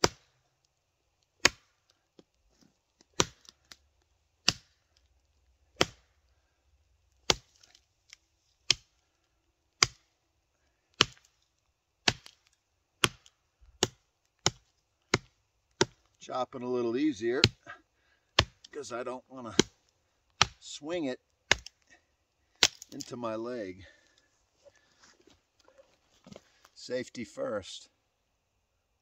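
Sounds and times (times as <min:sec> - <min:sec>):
machete chopping into wood: 0:01.4 - 0:01.7, 0:03.2 - 0:03.5, 0:04.4 - 0:04.7, 0:05.8 - 0:06.0, 0:07.3 - 0:07.7, 0:09.8 - 0:10.0, 0:11.0 - 0:11.3, 0:12.0 - 0:12.4, 0:13.0 - 0:16.0, 0:18.4 - 0:18.7, 0:20.4 - 0:20.6, 0:21.5 - 0:21.8, 0:22.6 - 0:23.0.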